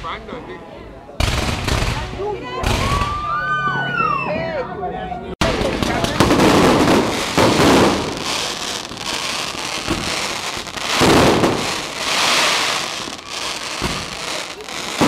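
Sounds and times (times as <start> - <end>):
fireworks crackling and popping: 1.2 - 3.2, 5.4 - 15.0.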